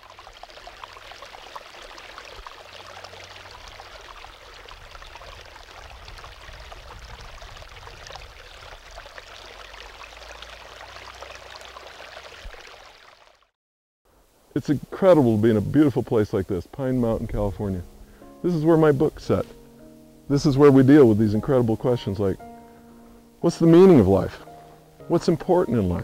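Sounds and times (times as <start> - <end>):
creek babbling over rocks: 0.0 - 13.5.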